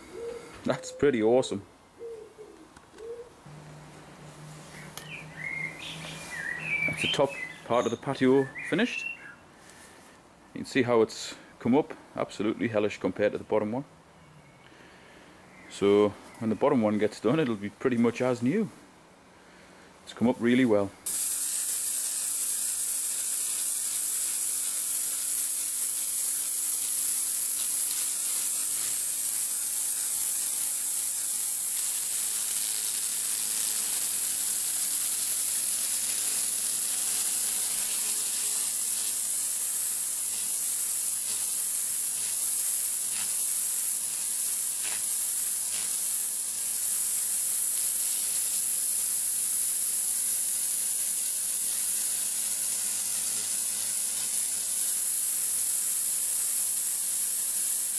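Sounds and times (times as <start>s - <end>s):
pressure washer spraying stone: 5.0s - 9.1s, 21.0s - 57.9s.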